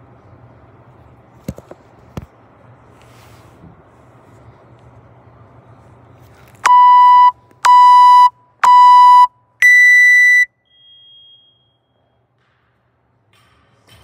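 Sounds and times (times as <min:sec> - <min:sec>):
higher long timer beep: 0:06.7 - 0:11.6
short medium-pitched timer beeps: 0:06.7 - 0:11.8.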